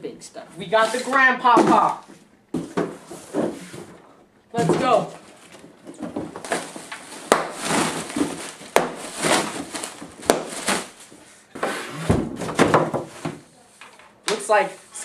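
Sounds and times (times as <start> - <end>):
box thumping: 1.4 - 3.9, 5.9 - 11.0
plastic packing rustling: 4.6 - 11.4.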